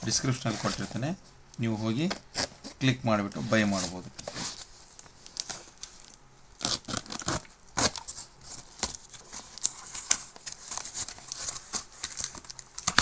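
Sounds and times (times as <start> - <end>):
wrapping crinkling: 2.2 - 13.0
tape and cardboard tearing: 6.6 - 13.0.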